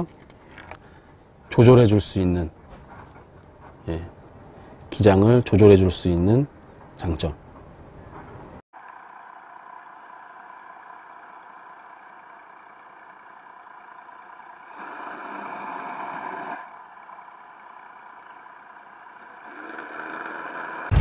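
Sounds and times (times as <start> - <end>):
boat motor humming underwater: 8.8 - 21.0.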